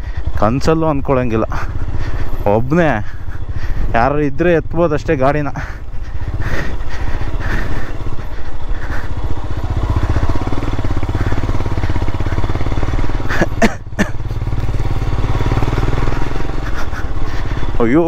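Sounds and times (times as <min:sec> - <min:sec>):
motorcycle engine thumping: 0:09.4 - 0:17.7.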